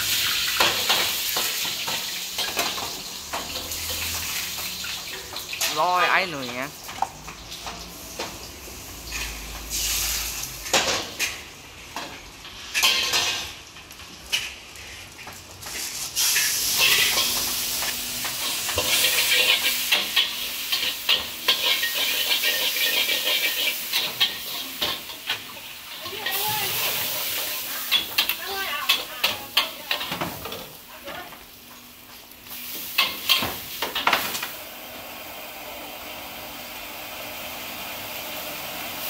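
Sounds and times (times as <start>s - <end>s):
noodles sizzling in wok: 0.0s - 39.0s
metal spatula scraping pan: 18.3s - 30.2s.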